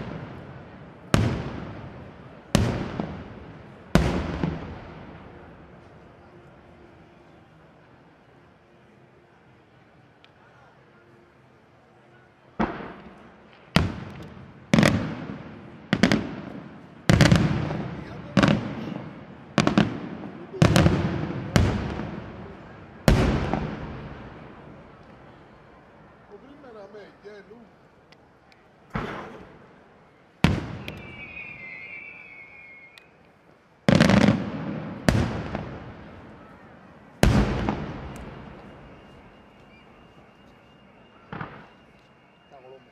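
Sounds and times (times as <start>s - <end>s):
firework booms with rolling echo: 0.0s - 5.8s, 12.6s - 25.3s, 30.4s - 32.3s, 33.8s - 40.0s, 41.2s - 41.9s.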